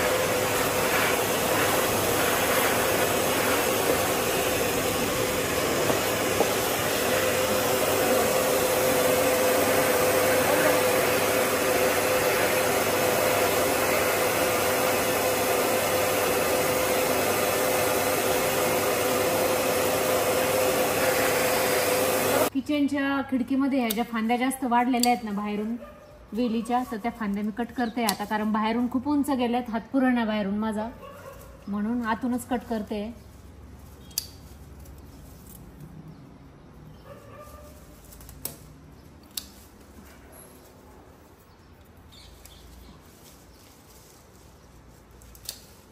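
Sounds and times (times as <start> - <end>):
vacuum cleaner running: 0.0 - 22.5
blade snipping branches: 24.9 - 25.4, 37.9 - 40.0, 45.2 - 45.9.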